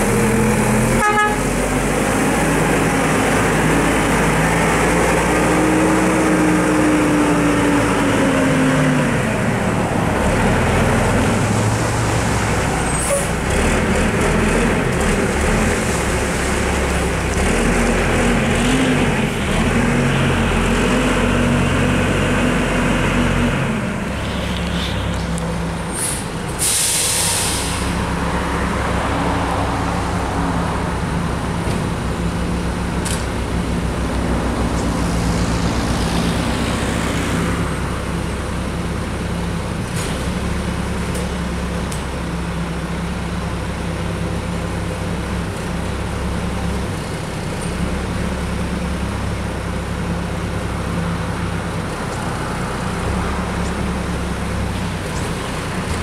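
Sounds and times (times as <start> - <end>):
air brake hiss: 25.9 - 28.0.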